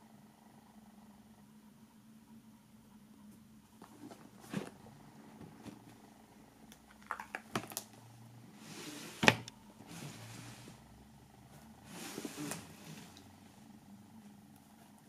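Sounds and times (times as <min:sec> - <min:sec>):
faint low hum: 0:00.0 - 0:15.0
cardboard rubbing and sliding: 0:08.5 - 0:10.9, 0:11.6 - 0:13.3.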